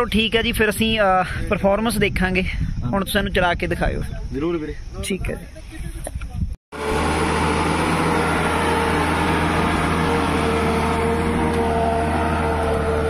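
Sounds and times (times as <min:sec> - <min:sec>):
tractor diesel engine under load: 0:06.7 - 0:13.0.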